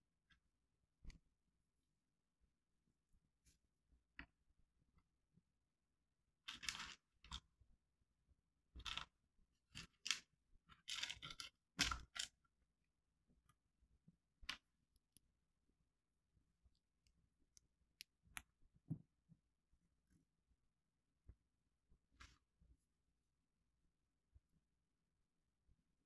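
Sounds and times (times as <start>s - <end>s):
plastic bricks clicking: 9.8s - 12.4s.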